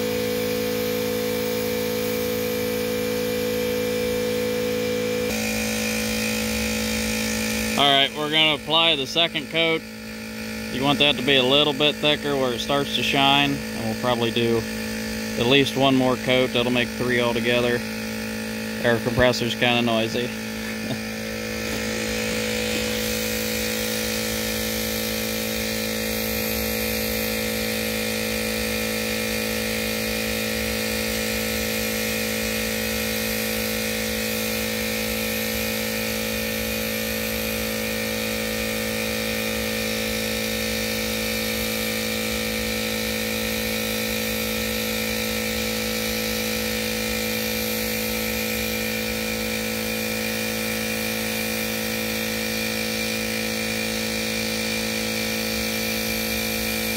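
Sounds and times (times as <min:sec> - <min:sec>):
air compressor humming: 0:00.0 - 0:56.9
spray gun hissing: 0:19.2 - 0:27.9.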